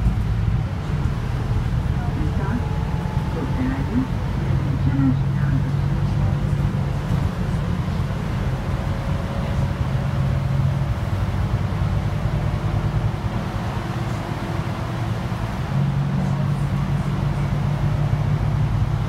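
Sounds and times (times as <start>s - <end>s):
bus engine hum: 0.0s - 19.0s
road and tyre noise: 0.0s - 19.0s.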